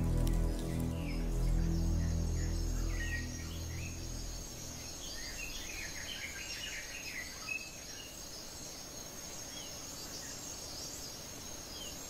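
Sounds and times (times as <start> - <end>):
high insect drone: 0.0 - 10.6.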